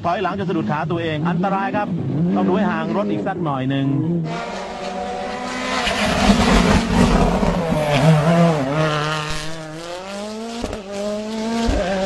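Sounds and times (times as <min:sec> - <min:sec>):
rally car engine accelerating: 0:00.3 - 0:12.0.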